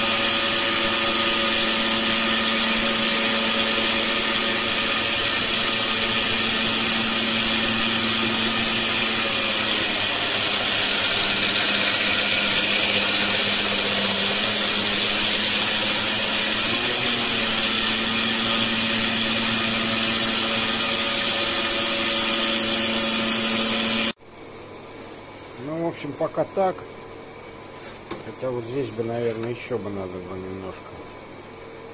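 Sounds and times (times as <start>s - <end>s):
belt grinder grinding steel blade: 0.0s - 24.2s.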